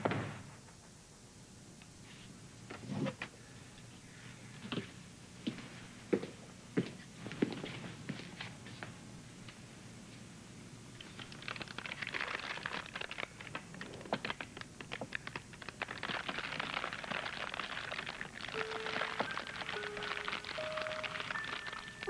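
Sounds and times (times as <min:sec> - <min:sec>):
paper bag crinkling: 0:11.0 - 0:22.0.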